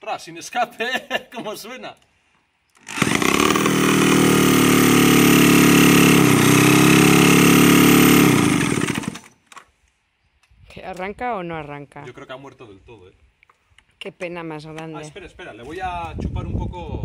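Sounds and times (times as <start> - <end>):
cordless drill spinning engine: 2.8 - 9.4.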